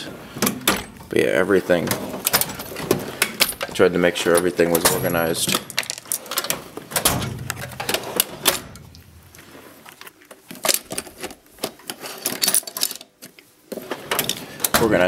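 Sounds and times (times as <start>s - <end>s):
tools clicking and knocking: 1.8s - 9.0s, 10.0s - 15.0s.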